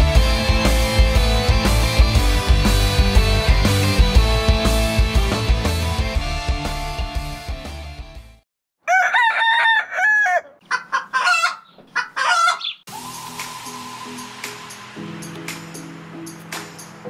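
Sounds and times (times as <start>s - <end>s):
music: 0.0s - 8.4s, 12.9s - 17.0s
rooster crowing: 8.8s - 12.8s.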